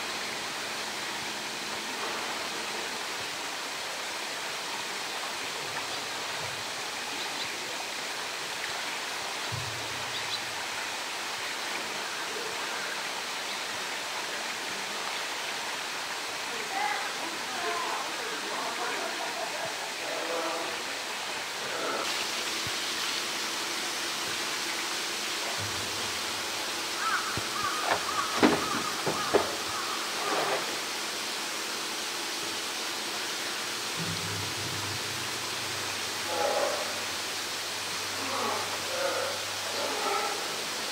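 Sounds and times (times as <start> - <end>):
running water rushing: 0.0 - 40.9
knocks on plastic barrel: 27.4 - 29.7.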